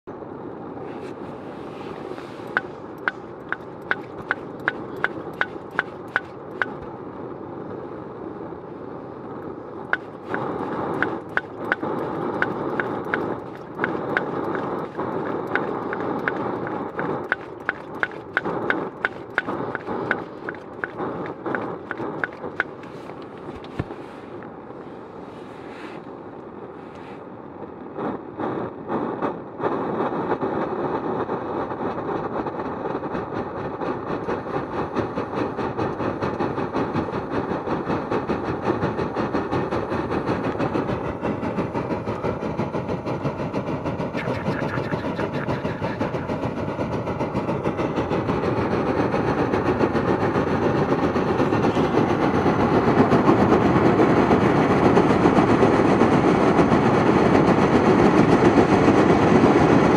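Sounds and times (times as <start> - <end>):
gas stove burner hissing: 0.9 - 6.9, 9.4 - 24.2
sharp clicks: 2.4 - 6.9, 9.9 - 23.7.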